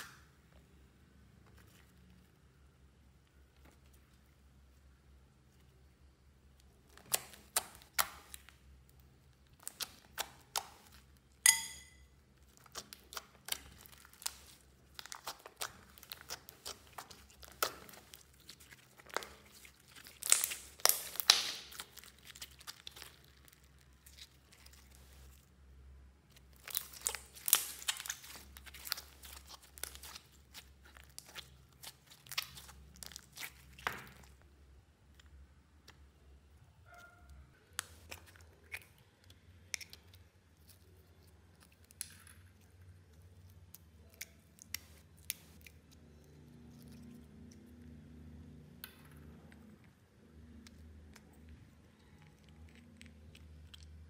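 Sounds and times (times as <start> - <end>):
slime crackling and popping: 6.7 - 25.4, 26.2 - 34.5.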